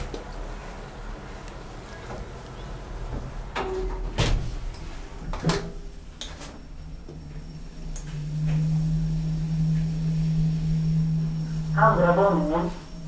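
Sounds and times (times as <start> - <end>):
elevator drive humming: 0.0 - 13.0
elevator door sliding closed: 1.8 - 6.7.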